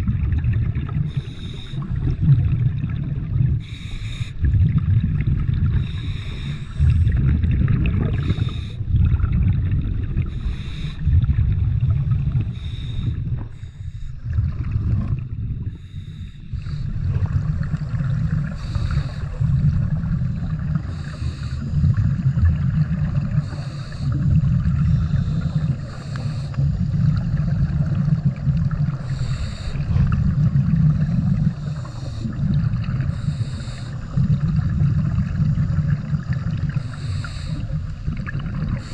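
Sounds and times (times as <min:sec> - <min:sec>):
exhaust bubbles rumbling: 0:00.0 - 0:15.8, 0:16.4 - 0:38.9
regulator inhale hiss: 0:01.1 - 0:02.0, 0:03.6 - 0:04.4, 0:05.7 - 0:07.2, 0:08.1 - 0:08.9, 0:10.2 - 0:11.2, 0:12.4 - 0:14.2, 0:15.7 - 0:17.1, 0:18.4 - 0:19.7, 0:20.8 - 0:22.0, 0:23.2 - 0:26.9, 0:28.9 - 0:30.1, 0:31.4 - 0:34.7, 0:36.4 - 0:38.0, 0:38.7 - 0:38.9.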